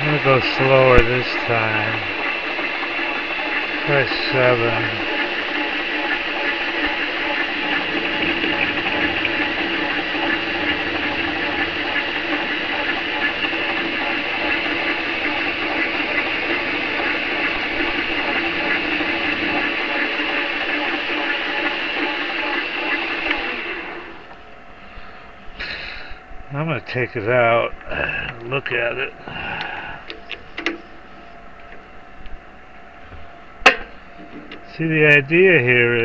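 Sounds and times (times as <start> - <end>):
metal lathe whining: 0.0 - 24.6.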